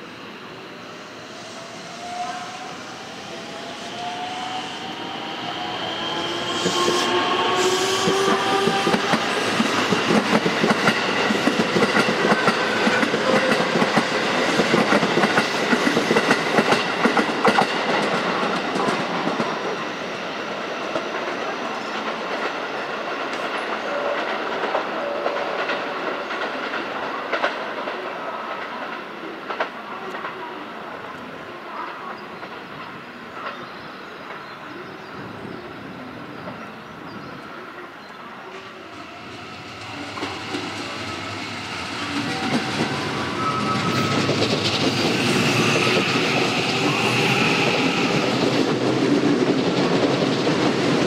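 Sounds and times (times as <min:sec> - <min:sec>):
train wheels clattering on rails: 0:06.0 - 0:19.8, 0:38.5 - 0:51.0.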